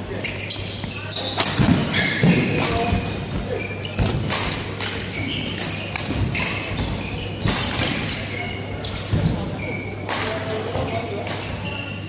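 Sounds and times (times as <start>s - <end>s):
shoes squeaking on court floor: 0.1s - 12.0s
racket striking shuttlecock: 1.3s - 3.2s.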